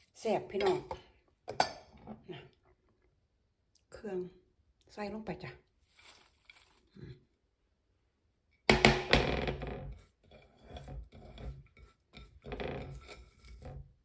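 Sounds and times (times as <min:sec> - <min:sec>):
scraping and clattering in pan: 0:05.9 - 0:06.9, 0:09.8 - 0:14.0
spatula knocking frying pan: 0:08.7 - 0:09.5.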